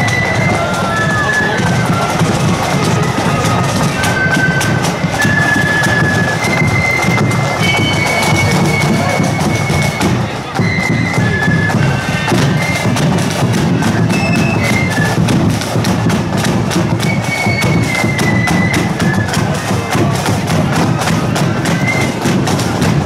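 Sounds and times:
bass drum beat: 0:00.0 - 0:10.6, 0:11.2 - 0:17.1
flutes playing melody: 0:00.0 - 0:23.0
side drum strokes: 0:00.0 - 0:23.0.

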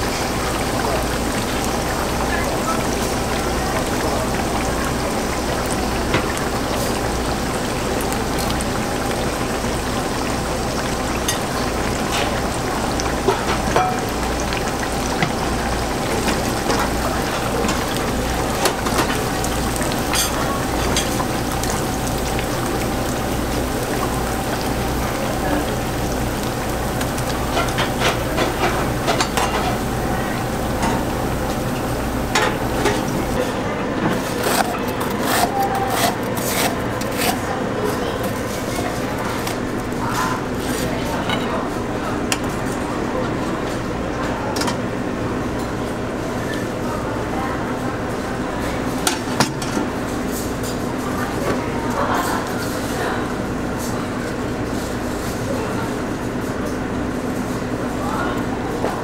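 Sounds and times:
oil popping and crackling: 0:00.0 - 0:33.4
food deep-frying in oil: 0:00.0 - 0:37.3, 0:38.0 - 0:59.0.

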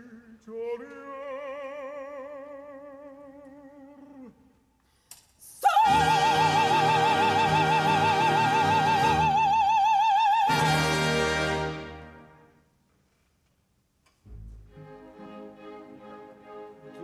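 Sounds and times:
baritone singing: 0:00.0 - 0:04.4, 0:05.5 - 0:12.0
orchestra: 0:05.4 - 0:12.6, 0:14.3 - 0:17.0.

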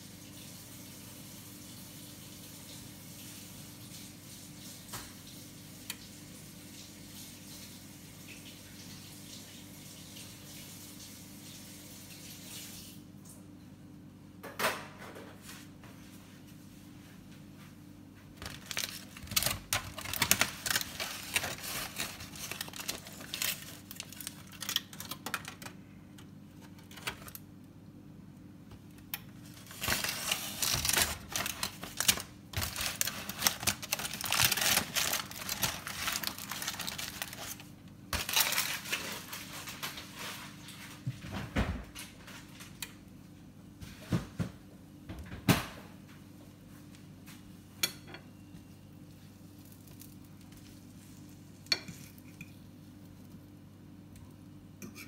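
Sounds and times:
low steady hum: 0:13.1 - 0:55.0
aluminium foil crinkling: 0:18.4 - 0:27.5, 0:28.9 - 0:41.0, 0:49.1 - 0:53.6.

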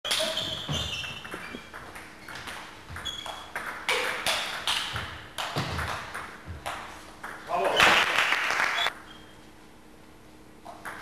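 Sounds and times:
table tennis ball pinging: 0:00.1 - 0:07.4.

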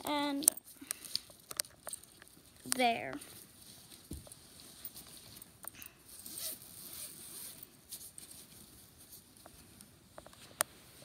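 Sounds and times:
fabric rustling: 0:00.1 - 0:11.0
zipper being drawn open: 0:05.8 - 0:07.7.

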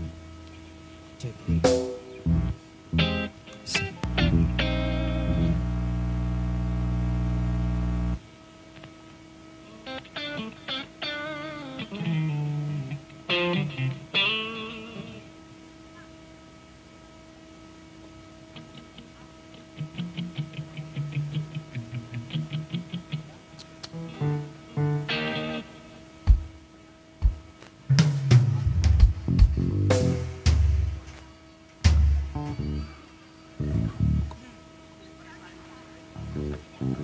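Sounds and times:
band holding loud chord: 0:00.0 - 0:08.2
electric guitar licks: 0:01.2 - 0:08.2, 0:09.8 - 0:15.2, 0:18.6 - 0:26.4, 0:29.3 - 0:30.5, 0:36.2 - 0:37.0.

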